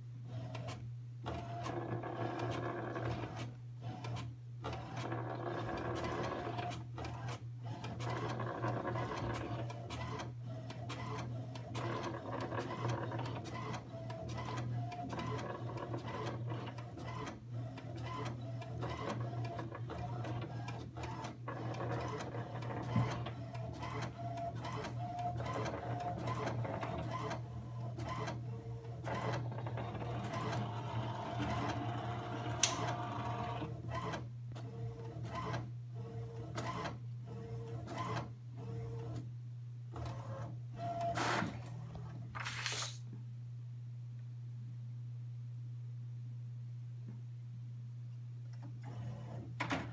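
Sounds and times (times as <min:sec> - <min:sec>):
printer whirring: 0:00.3 - 0:39.2.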